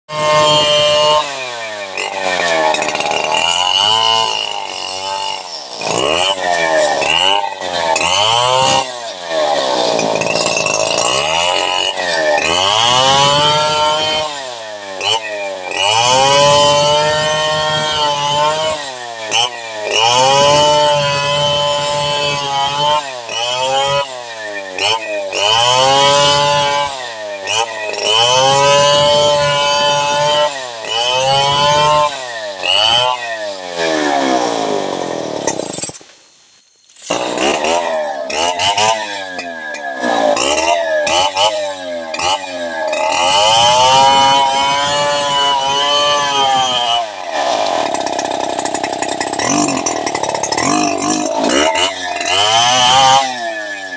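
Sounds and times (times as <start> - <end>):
chainsaw cutting through log: 0.0 - 36.2, 36.9 - 53.9.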